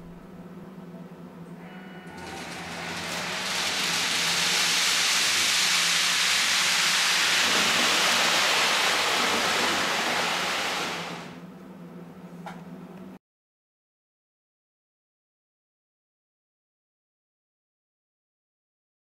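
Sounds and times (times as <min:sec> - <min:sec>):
rushing hiss of high-speed train: 0:02.1 - 0:11.4.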